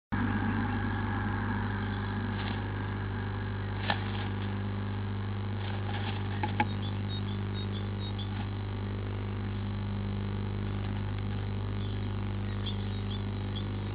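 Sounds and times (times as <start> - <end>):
electrical hum: 0.1 - 13.9
bird clicks and scratches in nest: 3.8 - 4.5, 5.6 - 6.9.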